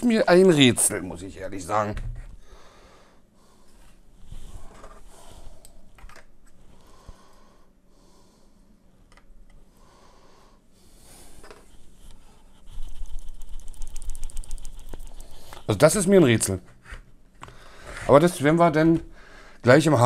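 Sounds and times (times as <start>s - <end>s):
rapid scratchy noise: 12.8s - 15.5s.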